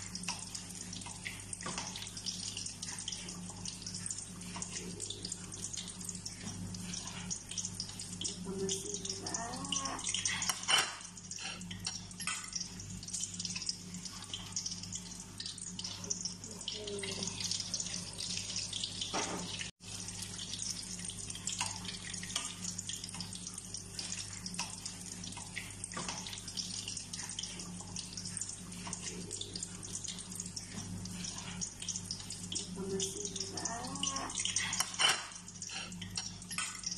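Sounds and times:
oil sizzling and crackling: 0.0s - 36.9s.

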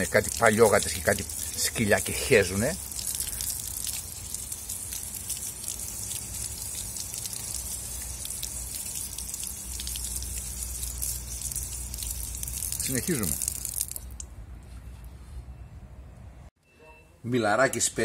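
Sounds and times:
tap water splashing on concrete: 0.0s - 14.3s.

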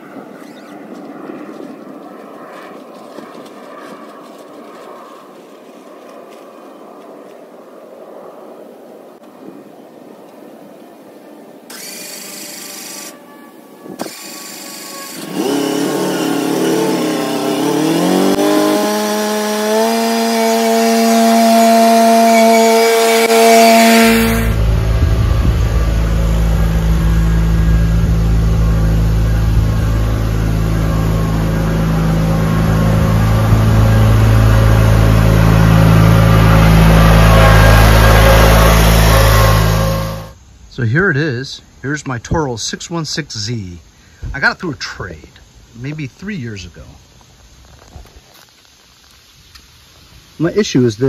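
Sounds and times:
engine drone: 0.0s - 40.6s
mower engine starting and revving: 11.7s - 13.2s, 13.9s - 40.4s.

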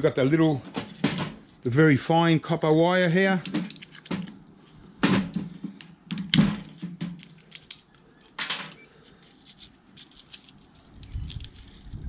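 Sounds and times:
light clicks and ticks of parts: 5.8s - 11.8s.

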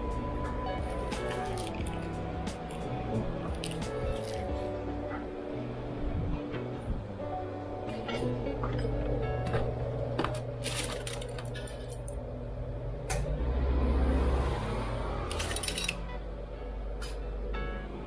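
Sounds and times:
low rumble: 0.0s - 15.4s
chopsticks rattling in plastic basket: 10.6s - 12.1s
steel spoons clinking: 15.3s - 16.0s.

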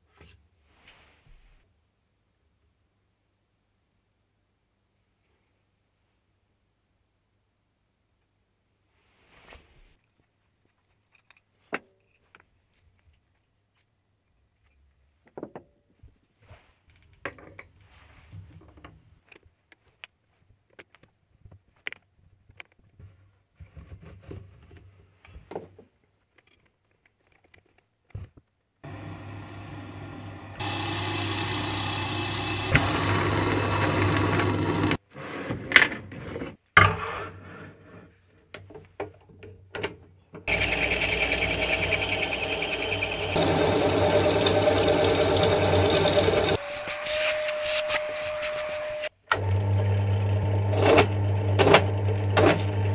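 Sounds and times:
drill cutting into metal: 28.8s - 35.0s, 40.5s - 48.9s
drill press running: 28.8s - 35.0s, 40.5s - 46.6s
screwdriver on small screw: 40.5s - 48.7s.

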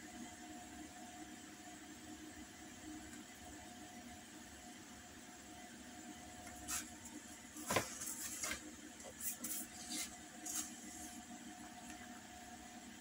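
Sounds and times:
paper rustling and scraping: 6.5s - 7.0s, 7.6s - 11.2s.

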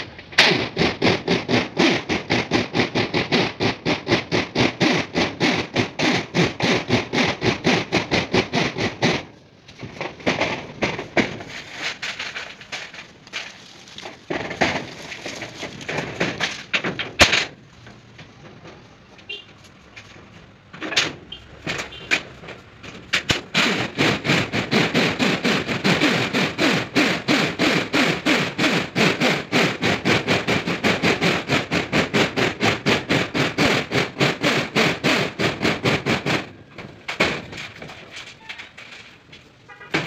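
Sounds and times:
sharp knocks on metal: 39.7s - 40.0s.

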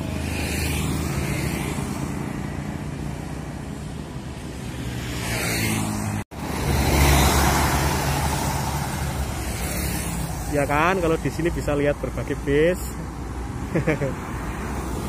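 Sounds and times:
motorcycles passing by: 0.0s - 15.0s.

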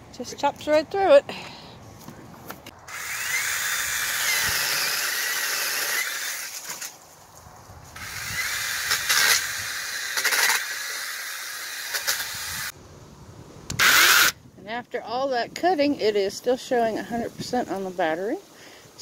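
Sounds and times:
electric chainsaw motor whine: 2.9s - 6.8s, 8.0s - 12.7s
branches cracking: 5.9s - 9.5s.

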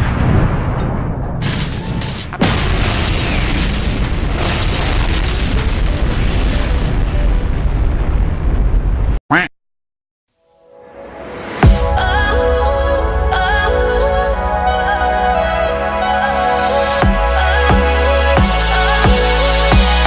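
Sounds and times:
booming explosion: 0.0s - 9.2s
explosion rumble: 0.0s - 9.2s.

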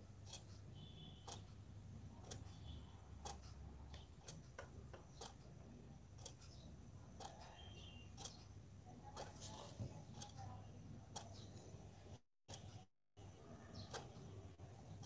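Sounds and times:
faint regular ticking: 0.0s - 15.0s
soft clicks: 2.2s - 5.5s.

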